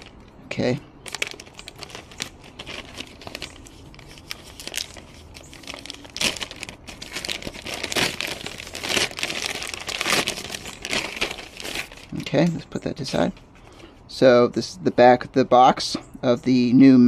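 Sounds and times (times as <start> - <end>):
plastic bag tearing and crinkling: 0.0 - 12.2.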